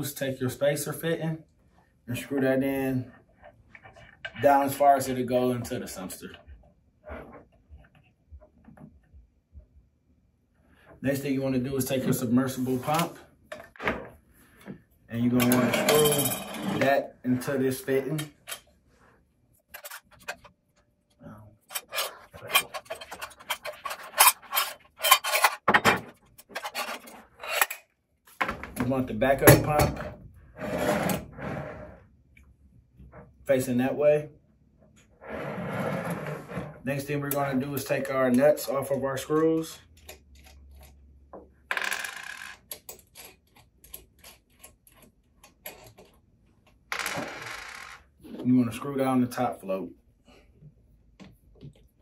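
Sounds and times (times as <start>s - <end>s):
threads scraping and clicking: 21.6s - 27.9s, 42.6s - 46.8s.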